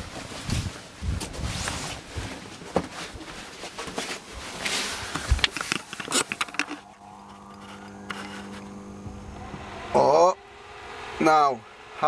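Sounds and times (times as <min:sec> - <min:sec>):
knocks and scraping rustle: 0:00.0 - 0:08.8
footsteps: 0:02.0 - 0:06.9
electrical hum with high whine: 0:04.0 - 0:12.0.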